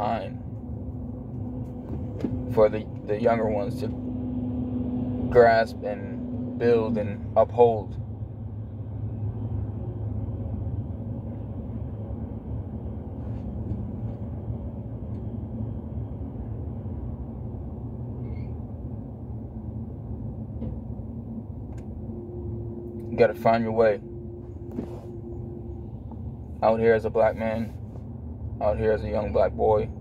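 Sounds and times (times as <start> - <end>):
car engine rumble from inside: 0.0 - 30.0.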